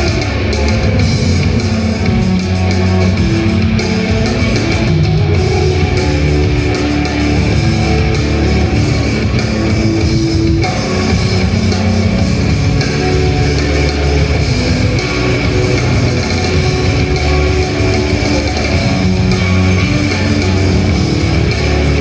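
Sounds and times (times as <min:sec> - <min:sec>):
live rock music: 0:00.0 - 0:22.0.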